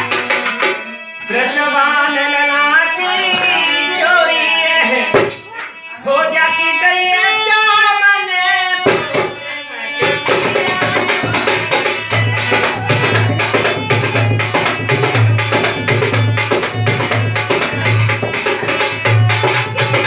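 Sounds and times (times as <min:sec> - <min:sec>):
dholak drum played fast: 0:00.0 - 0:00.8, 0:05.1 - 0:05.5, 0:08.8 - 0:09.4, 0:10.0 - 0:20.0
harmonium: 0:00.0 - 0:20.0
person singing: 0:00.0 - 0:20.0.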